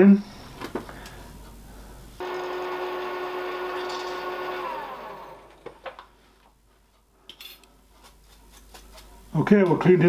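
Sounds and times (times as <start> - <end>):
milling machine spindle whine: 2.2 - 5.6.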